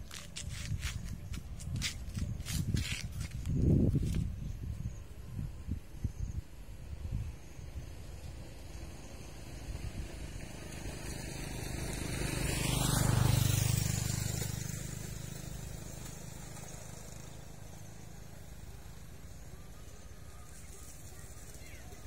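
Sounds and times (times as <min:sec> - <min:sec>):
vehicle passing by: 0:07.0 - 0:22.0.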